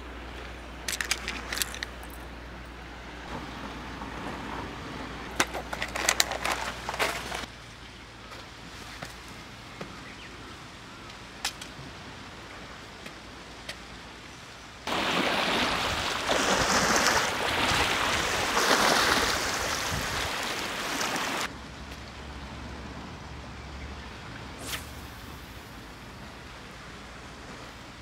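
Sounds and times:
water lapping against seawall: 14.8s - 21.5s.

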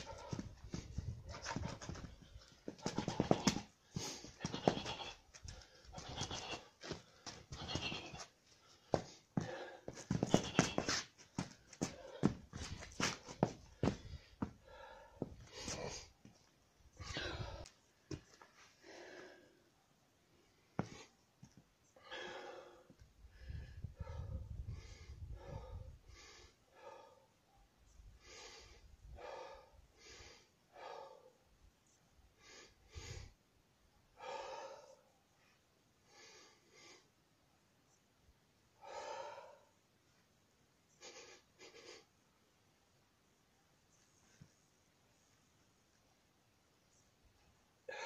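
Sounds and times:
man breathing hard: 0.0s - 4.6s, 5.4s - 16.2s, 17.0s - 17.8s, 22.0s - 27.5s, 28.1s - 31.5s, 34.1s - 35.1s, 38.8s - 39.8s.

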